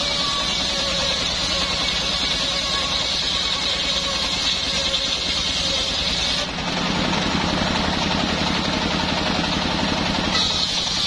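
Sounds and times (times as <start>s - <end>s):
saw blade ripping wood: 0.0s - 6.6s, 10.2s - 11.0s
engine running: 0.0s - 11.0s.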